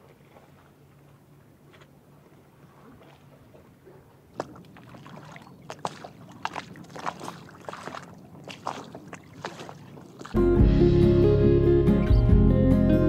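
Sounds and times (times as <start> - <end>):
water splashing against hull: 0.0 - 10.4
loud guitar music: 10.4 - 13.0.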